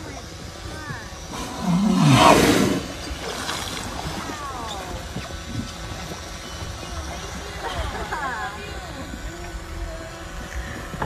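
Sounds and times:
whale blowing: 0:01.3 - 0:06.3.

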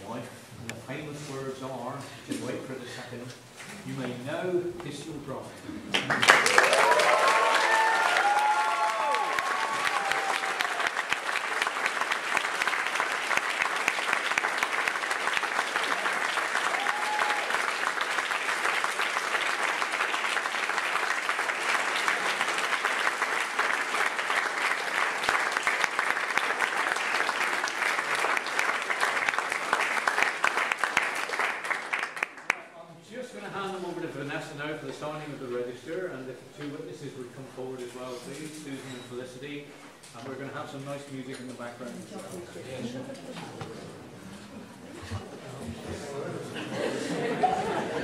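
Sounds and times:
crowd applauding: 0:05.9 - 0:32.7.

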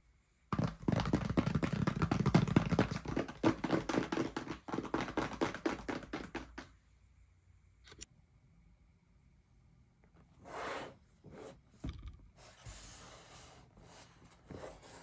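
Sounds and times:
fingers tapping on cardboard box: 0:00.5 - 0:06.7.

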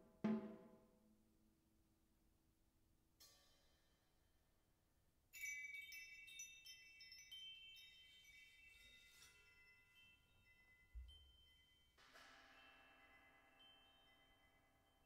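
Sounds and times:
metal percussion chimes ringing: 0:05.4 - 0:15.0.

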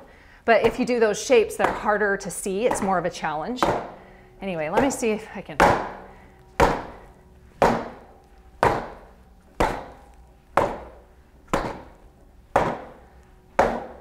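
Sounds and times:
punches knocking padded panel: 0:01.6 - 0:02.0, 0:02.6 - 0:04.0, 0:05.6 - 0:06.0, 0:06.6 - 0:07.0, 0:07.6 - 0:12.0, 0:12.6 - 0:14.0.

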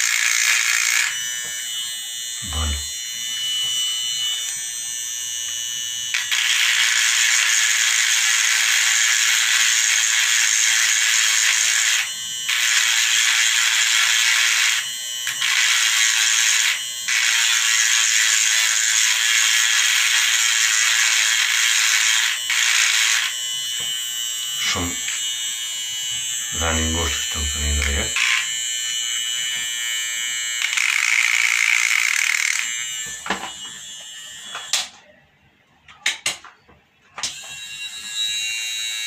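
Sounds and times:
rotary tool whirring on plastic: 0:00.0 - 0:01.6, 0:06.1 - 0:24.0, 0:30.3 - 0:34.8.

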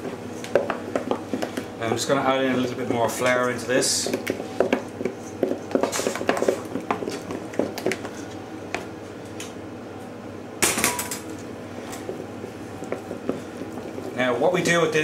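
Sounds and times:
utensil scraping a mixing bowl: 0:00.0 - 0:08.4, 0:11.8 - 0:15.0.

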